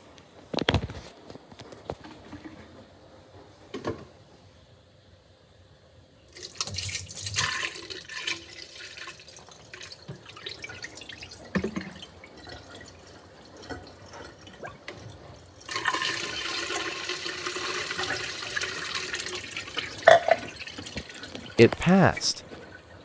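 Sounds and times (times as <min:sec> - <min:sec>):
juice pouring and splashing: 0:06.4 - 0:22.2.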